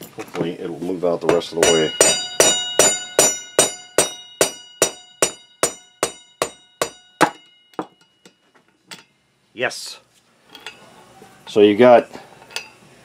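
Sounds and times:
hammer tapping on metal: 0:01.2 - 0:08.4.

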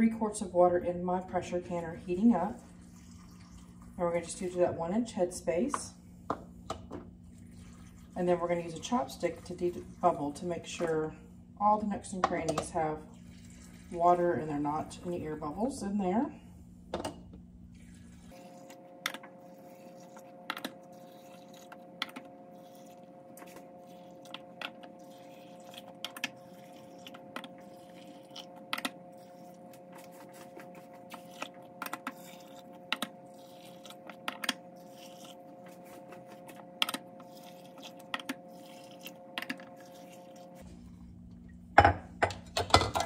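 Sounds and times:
steady hum: 0:00.0 - 0:42.7
water pouring: 0:02.5 - 0:04.0, 0:07.4 - 0:08.3, 0:37.2 - 0:40.6.

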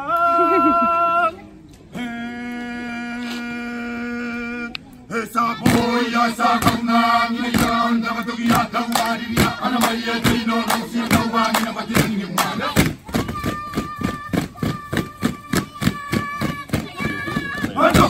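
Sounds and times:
chorus chanting in unison: 0:05.1 - 0:13.0, 0:17.3 - 0:18.0
sharp percussive beat: 0:05.6 - 0:06.9, 0:07.5 - 0:18.0.

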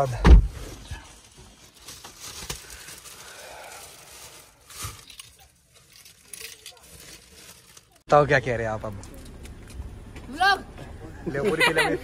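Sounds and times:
plastic bag rustling: 0:00.0 - 0:08.1.

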